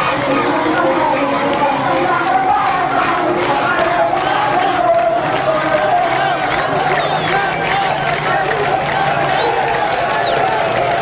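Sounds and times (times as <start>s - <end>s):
crowd chanting and cheering: 0.0s - 11.0s
hands clapping: 0.0s - 11.0s.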